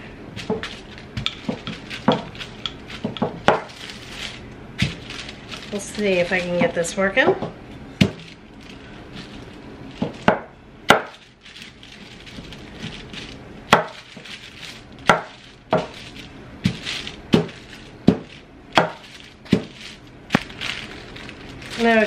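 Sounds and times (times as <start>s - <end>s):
plastic sheets rustling: 0.0s - 22.0s
rolling pin rolling dough: 0.3s - 22.0s
rolling pin knocking on table: 3.0s - 3.7s.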